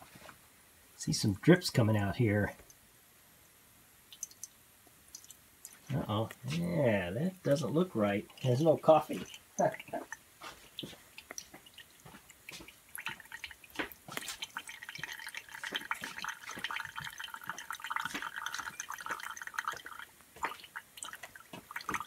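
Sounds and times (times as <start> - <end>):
sputtering sizzle of boiling water: 4.0 - 22.0
coffee maker dripping and ticking: 4.1 - 6.4, 7.0 - 22.0.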